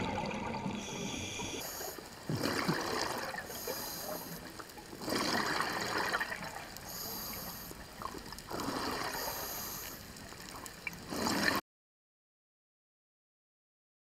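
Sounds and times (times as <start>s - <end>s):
exhaled bubbles gurgling underwater: 0.0s - 11.6s
regulator inhaling hiss: 0.8s - 2.1s, 3.4s - 4.6s, 6.8s - 7.9s, 9.1s - 10.2s.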